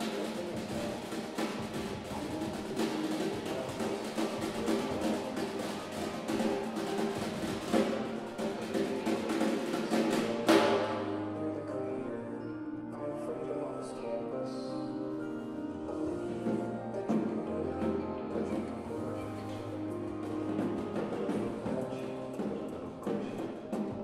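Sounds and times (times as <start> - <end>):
snare drum played with sticks: 0.0 - 11.1, 20.2 - 24.0
electronic backing track: 0.0 - 24.0.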